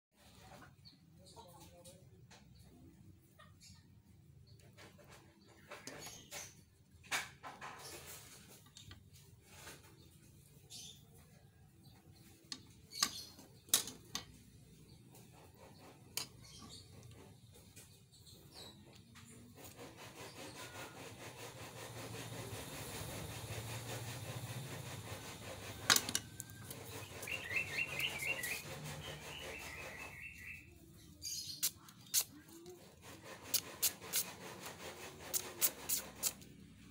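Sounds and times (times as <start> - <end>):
high wavering chirping: 26.4 - 32.2.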